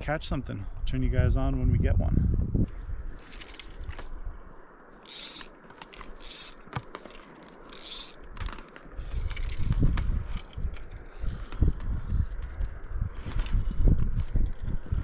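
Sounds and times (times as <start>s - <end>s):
line and rod clicks: 4.9s - 14.8s
fishing line zipping out: 5.0s - 9.7s.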